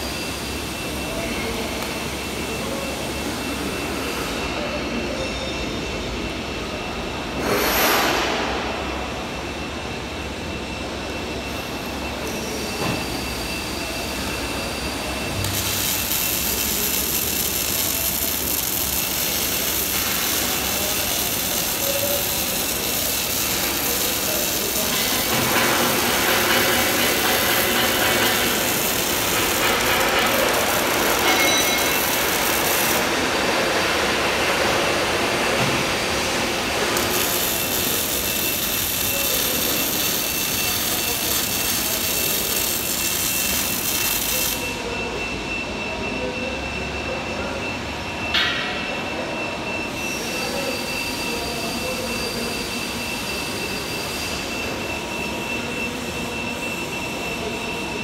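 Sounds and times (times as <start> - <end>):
welding arc sizzling: 13.4 - 44.8
loud burst of noise: 15.2 - 44.8.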